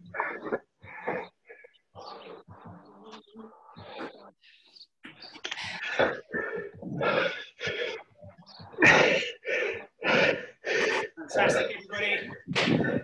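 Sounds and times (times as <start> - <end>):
person breathing hard: 5.5 - 8.1, 8.8 - 11.2.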